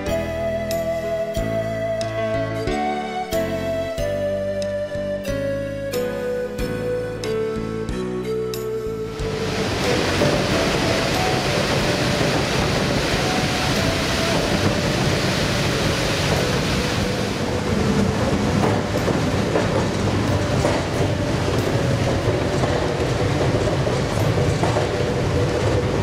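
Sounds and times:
funicular car rumbling on rails: 0.0s - 26.0s
waterfall rushing: 9.2s - 26.0s.

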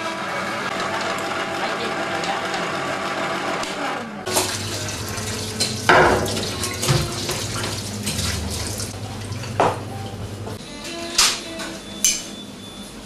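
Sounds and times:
water splashing: 4.3s - 9.6s
dishes clattering: 5.6s - 8.4s
tap running into metal sink: 5.6s - 8.4s.

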